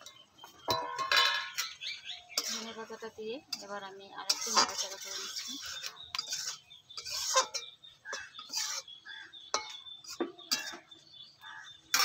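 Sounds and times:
metal spatula clinking and scraping pan: 0:00.0 - 0:11.0, 0:11.6 - 0:12.0.

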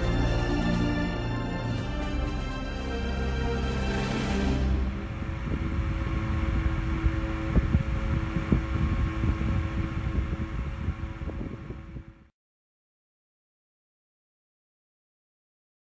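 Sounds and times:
desk fan motor hum: 0:02.9 - 0:12.3.

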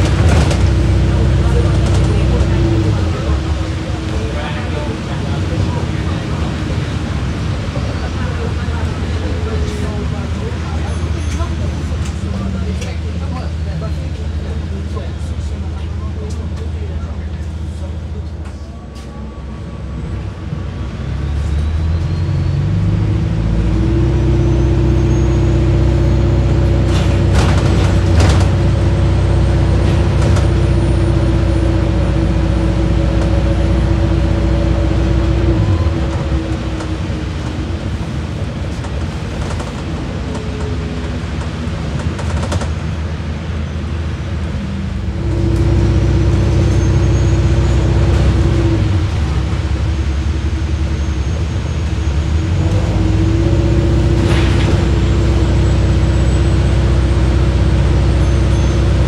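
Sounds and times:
bus diesel engine working hard: 0:00.0 - 0:59.0
bus body knocks and rattles: 0:26.9 - 0:28.8.

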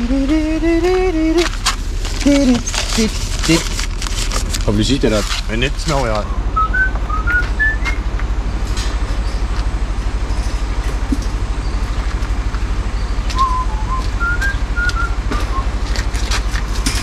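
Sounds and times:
diesel truck engine drone: 0:00.0 - 0:17.0
person whistling a tune: 0:06.6 - 0:08.0, 0:13.4 - 0:15.7.

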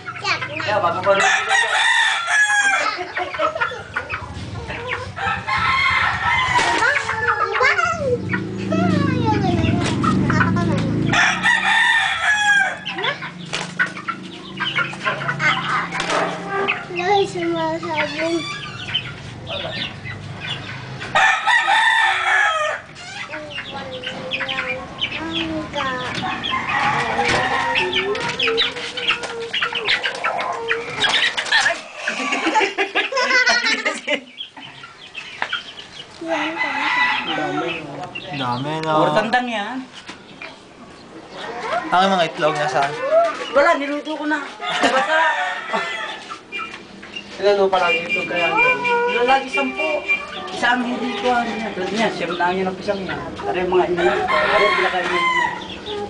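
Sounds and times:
chickens clucking: 0:00.0 - 0:56.0
rooster crowing: 0:01.1 - 0:03.0, 0:05.2 - 0:07.2, 0:11.1 - 0:12.9, 0:21.1 - 0:23.0, 0:26.3 - 0:28.2, 0:36.2 - 0:38.0, 0:44.6 - 0:46.4, 0:48.5 - 0:52.2, 0:53.8 - 0:56.0.

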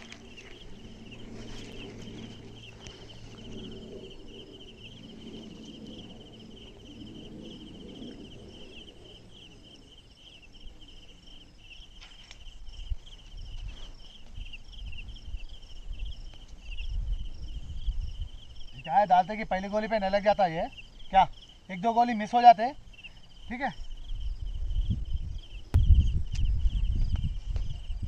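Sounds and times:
low rumble: 0:00.0 - 0:11.5
insects trilling: 0:00.0 - 0:28.0.

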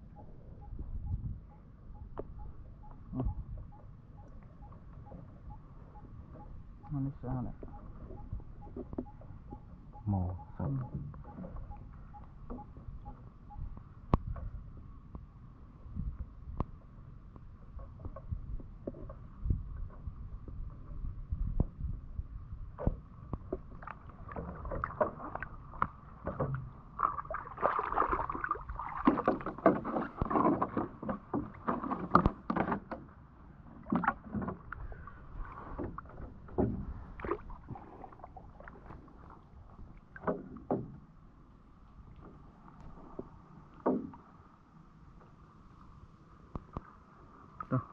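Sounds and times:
water sloshing and splashing: 0:22.8 - 0:44.5
faint steady whine: 0:40.8 - 0:47.9.

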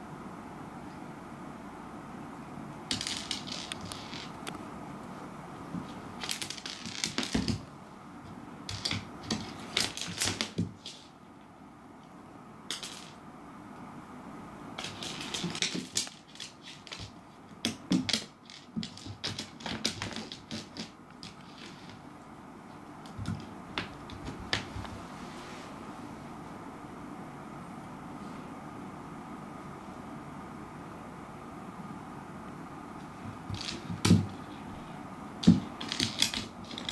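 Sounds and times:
seed skittering on wooden floor: 0:02.9 - 0:04.5, 0:05.8 - 0:07.7, 0:08.7 - 0:11.1, 0:14.8 - 0:22.1, 0:33.5 - 0:34.4, 0:35.4 - 0:36.9
cat paws striking floorboards: 0:14.8 - 0:22.0, 0:35.4 - 0:36.9.

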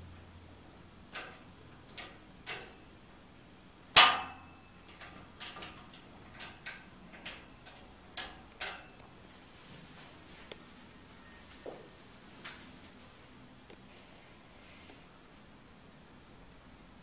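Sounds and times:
glass fittings clinking: 0:04.0 - 0:08.9.

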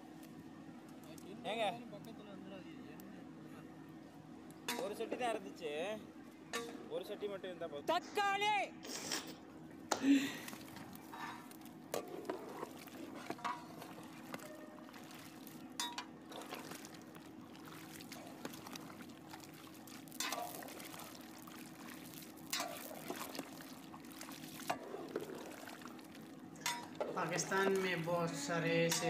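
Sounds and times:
pot bubbling: 0:09.0 - 0:28.2.

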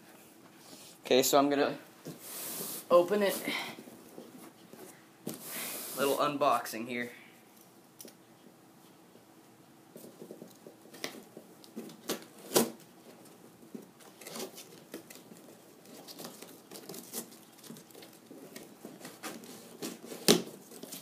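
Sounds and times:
packing tape scratched and peeled: 0:14.0 - 0:21.0.

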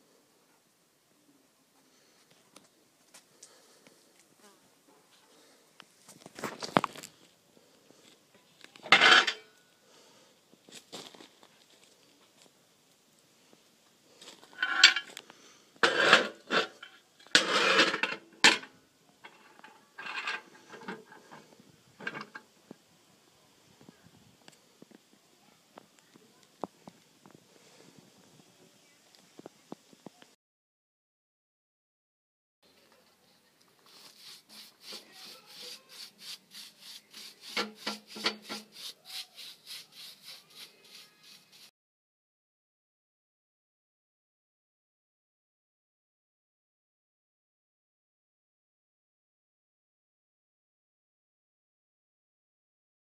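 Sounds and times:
metal door scraping and clanking: 0:17.4 - 0:18.1
brush scrubbing metal plate: 0:33.9 - 0:41.7.

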